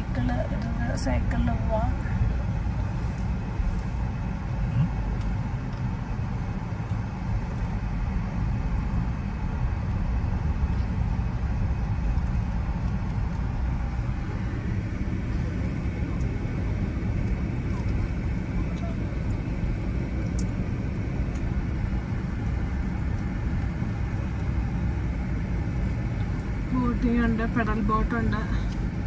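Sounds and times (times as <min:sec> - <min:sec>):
car road noise rumble: 0:00.0 - 0:29.0.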